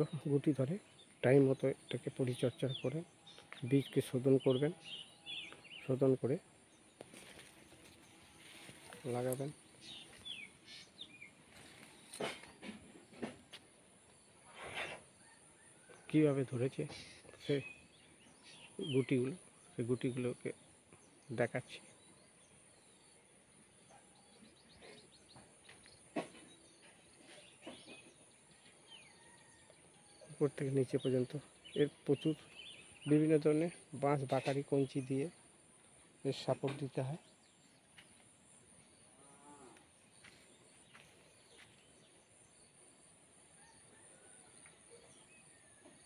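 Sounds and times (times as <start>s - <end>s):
bird chirps: 0.0s - 13.3s, 23.9s - 42.8s
faint bird chirps: 14.1s - 46.0s.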